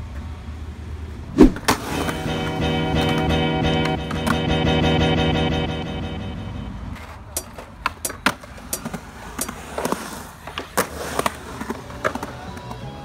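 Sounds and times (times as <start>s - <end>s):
skateboard rolling on concrete: 0.0s - 5.0s, 6.8s - 13.0s
background music: 1.8s - 7.0s
skateboard clacking on ground: 7.0s - 13.0s.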